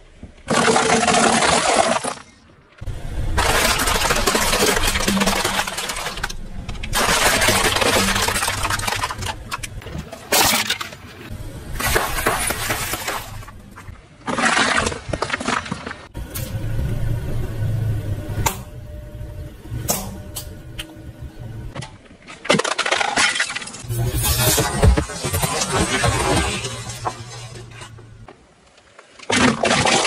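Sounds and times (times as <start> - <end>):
low engine rumble: 16.1 - 21.8.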